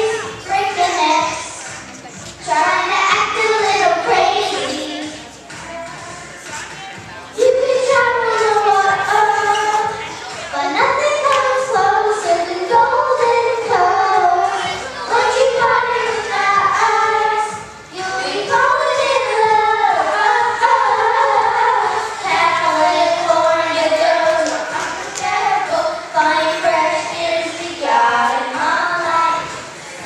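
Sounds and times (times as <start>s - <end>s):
girls singing into microphones: 0.0s - 30.0s.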